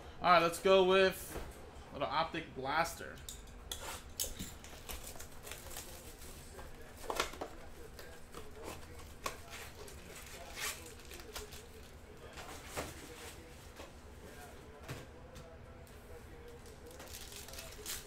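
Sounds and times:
foil crinkling: 4.7s - 7.9s, 8.5s - 12.0s, 16.6s - 18.0s.

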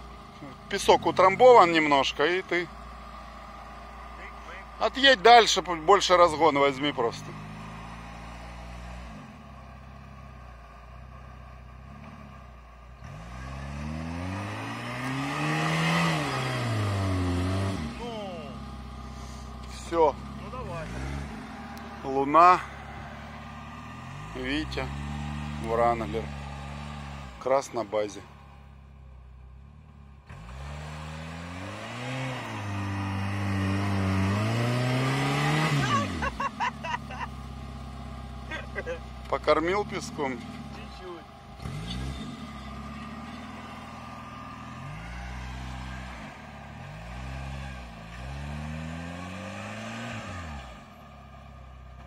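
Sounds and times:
engine revving: 0.0s - 52.0s.

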